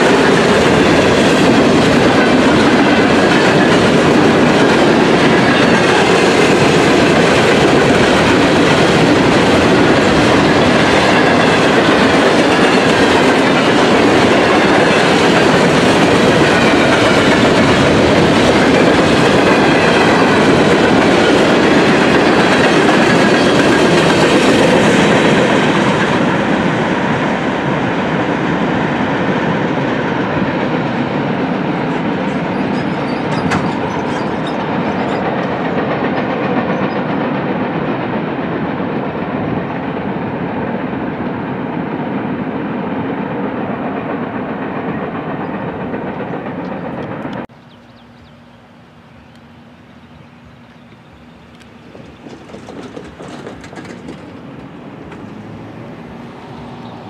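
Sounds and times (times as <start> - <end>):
freight train wheels on rails: 0.0 - 57.0.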